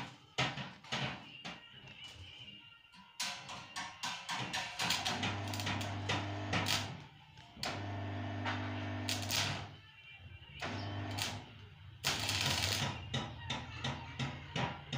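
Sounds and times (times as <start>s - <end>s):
welding arc crackling and buzzing: 4.8s - 7.0s, 7.6s - 9.8s, 10.6s - 13.0s.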